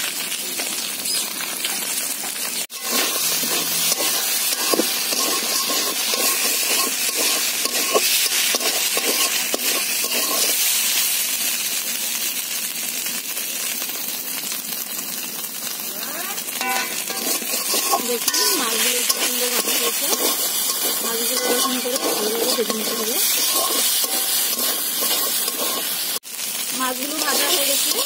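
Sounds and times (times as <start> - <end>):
fish sizzling in hot oil: 0.0 - 28.0
metal spatula scraping wok: 2.7 - 11.0, 16.4 - 26.2, 26.8 - 28.0.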